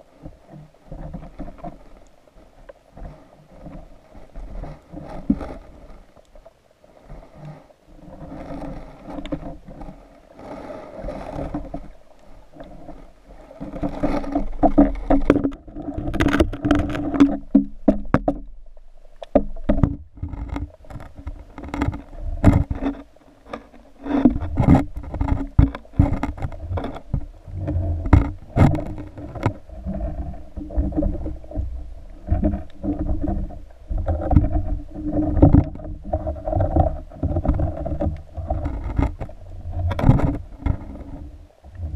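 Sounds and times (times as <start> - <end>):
muffled underwater water sloshing: 0.0 - 41.9
sharp clicks and knocks: 13.6 - 18.6, 19.2 - 31.6, 32.3 - 41.3.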